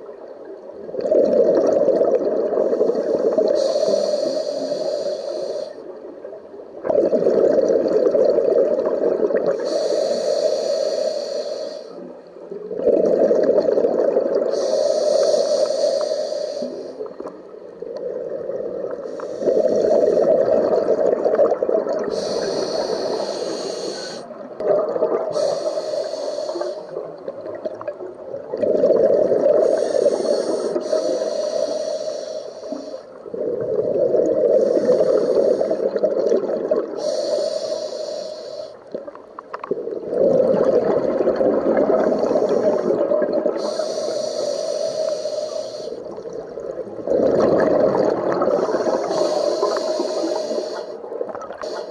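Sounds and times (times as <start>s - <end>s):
exhaled bubbles rushing: 0.8s - 3.6s, 6.8s - 9.6s, 12.7s - 14.6s, 17.1s - 22.5s, 24.2s - 25.6s, 27.0s - 30.9s, 33.2s - 37.0s, 39.0s - 43.7s, 46.0s - 49.8s
regulator inhale hiss: 2.8s - 6.0s, 9.6s - 12.2s, 14.5s - 17.3s, 19.0s - 20.3s, 22.0s - 24.4s, 25.3s - 27.0s, 29.6s - 33.7s, 34.4s - 36.1s, 36.9s - 38.9s, 42.0s - 46.2s, 48.4s - 51.9s.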